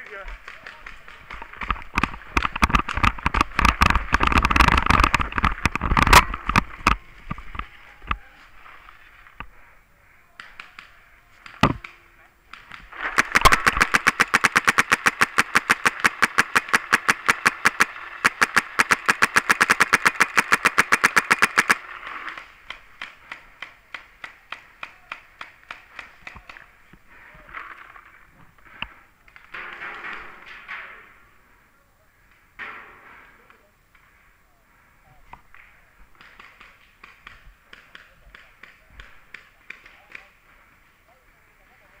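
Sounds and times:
paintball marker firing: 10.4s - 26.8s, 36.2s - 40.3s.

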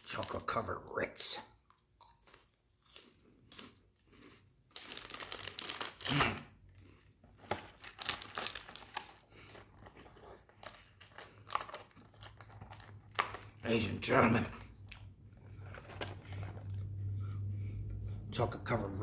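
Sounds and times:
plastic sleeve crinkling: 4.7s - 6.5s, 7.4s - 17.0s.

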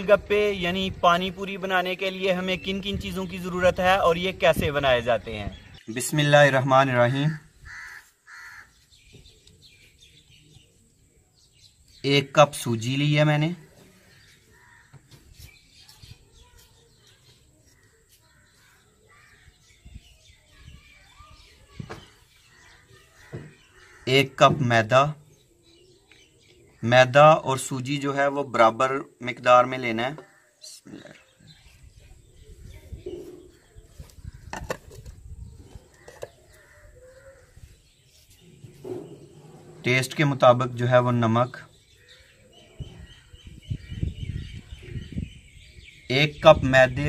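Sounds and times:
birds calling: 0.0s - 47.0s
faint bird calls: 7.2s - 10.9s, 30.2s - 39.8s.

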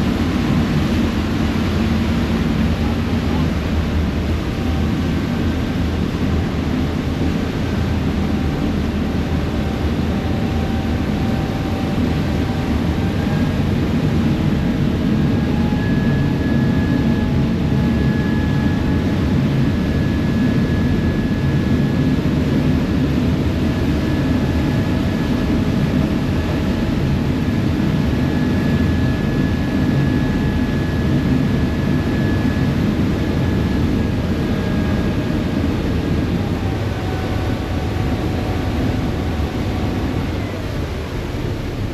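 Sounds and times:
faint high whine: 23.7s - 41.9s.

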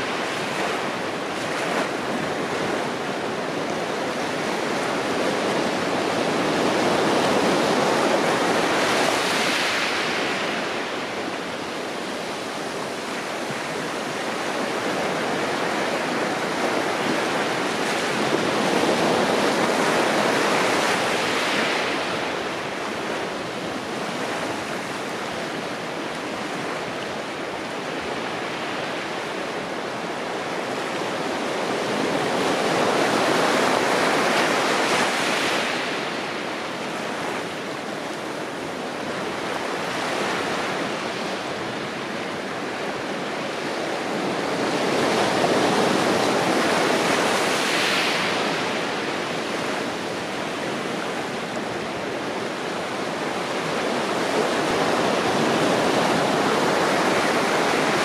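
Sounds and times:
surf washing onto rocks: 39.3s - 58.0s.

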